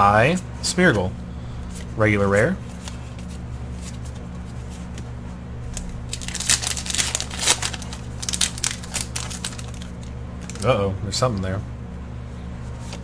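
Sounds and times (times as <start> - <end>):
low hum: 0.0 - 13.0
foil wrapper crinkling and tearing: 5.7 - 10.8.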